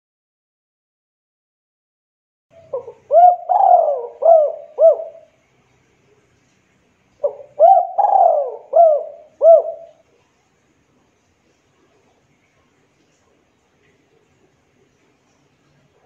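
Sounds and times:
dove cooing: 2.6s - 5.4s, 7.2s - 10.1s.

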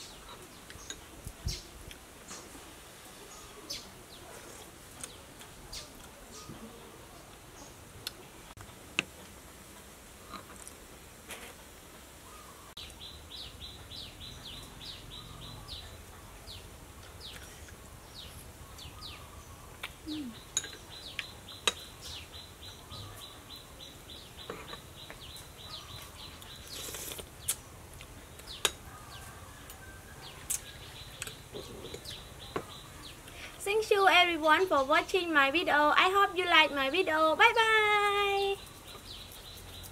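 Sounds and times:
birds chirping: 12.2s - 39.9s.

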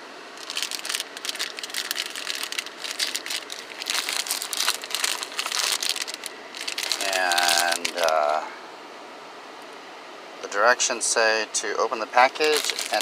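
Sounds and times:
plastic wrapper crinkling: 0.4s - 8.4s, 12.3s - 13.0s.

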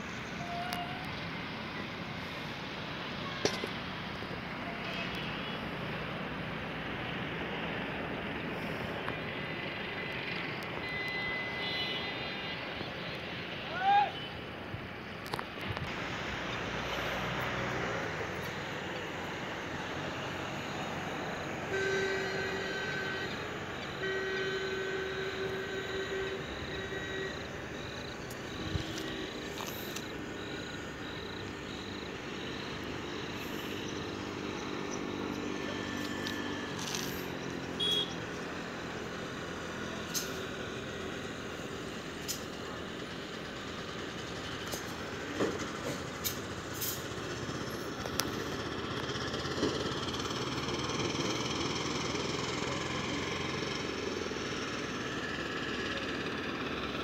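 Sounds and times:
steady background noise: 0.0s - 57.0s
horn blasts: 21.6s - 30.0s, 35.8s - 38.3s.

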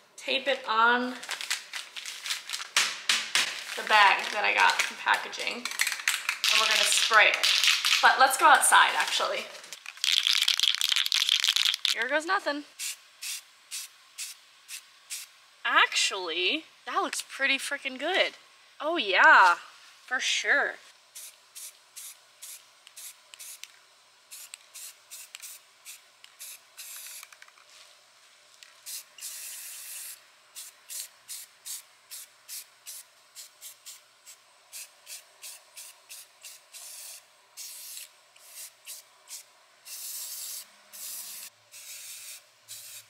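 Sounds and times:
spray paint can hissing: 10.0s - 12.0s, 12.8s - 15.3s, 21.2s - 23.6s, 24.3s - 27.4s, 28.8s - 43.0s.

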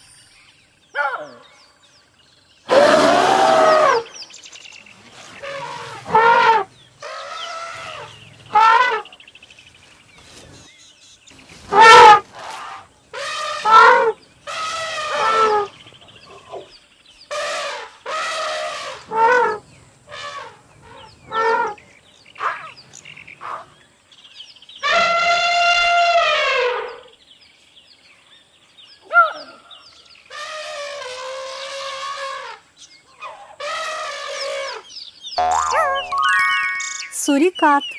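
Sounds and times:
elephants trumpeting: 2.7s - 4.1s, 5.2s - 9.1s, 11.7s - 16.6s, 17.3s - 21.8s, 24.8s - 27.1s, 30.3s - 32.6s, 33.2s - 34.8s.

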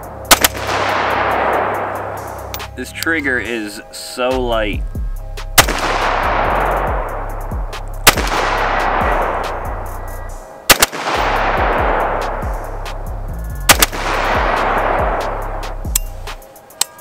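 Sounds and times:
background music: 0.0s - 17.0s
rifle shots: 0.3s - 2.2s, 5.6s - 7.1s, 8.0s - 9.6s, 10.7s - 12.4s, 13.7s - 15.3s.

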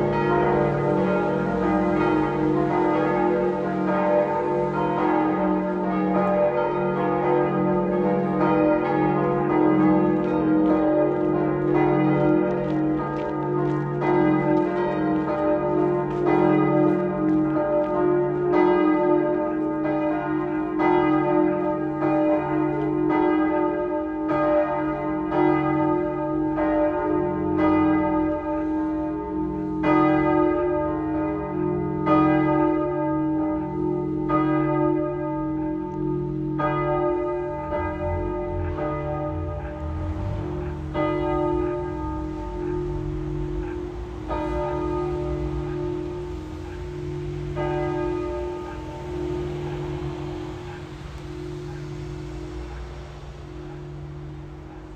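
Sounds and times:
church bells ringing in a peal: 0.0s - 54.9s
heavy bell stroke: 36.2s - 54.6s.

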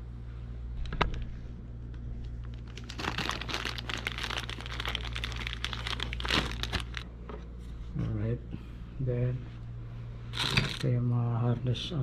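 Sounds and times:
plastic bag crinkling: 2.4s - 7.1s, 10.4s - 10.9s.

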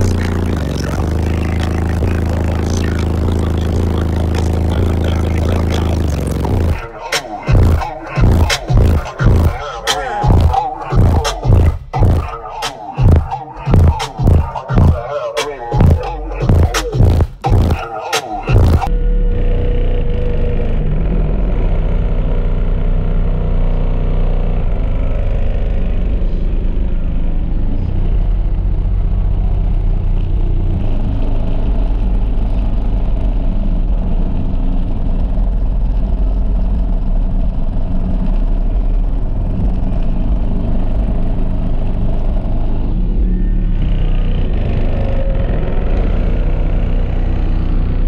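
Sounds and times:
loud deep bass from subwoofers: 0.0s - 48.0s.

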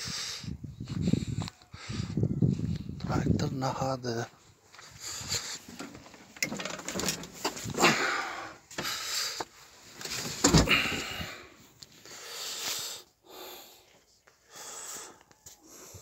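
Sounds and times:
rustling handling noise: 5.4s - 7.8s, 8.7s - 10.6s.

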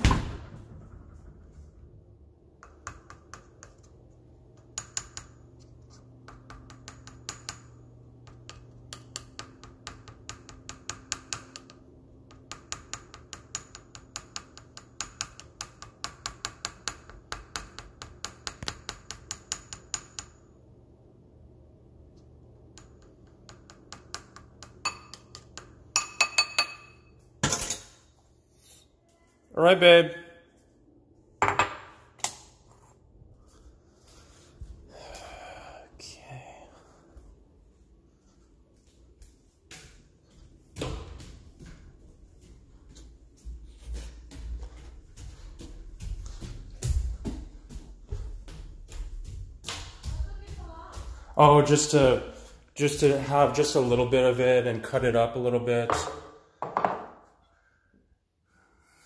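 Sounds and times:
utensil clinking ceramic bowl: 24.8s - 27.8s.

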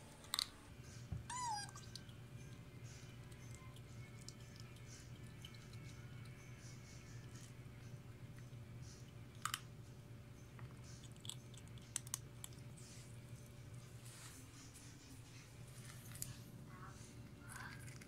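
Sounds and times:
kitten crunching kibble: 0.0s - 0.6s, 6.9s - 9.8s, 10.5s - 14.1s, 15.6s - 18.0s
faint low hum: 0.0s - 18.0s
kibble clicking in metal bowl: 11.0s - 12.6s.

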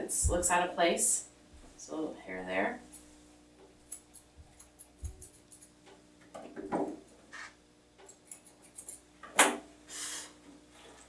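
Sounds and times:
shears snipping hair: 3.8s - 5.8s.

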